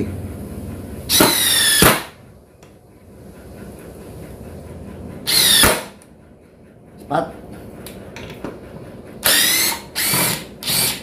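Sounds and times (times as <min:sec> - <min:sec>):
impact driver whine: 0:01.1 - 0:02.2, 0:05.3 - 0:06.0, 0:09.2 - 0:11.0.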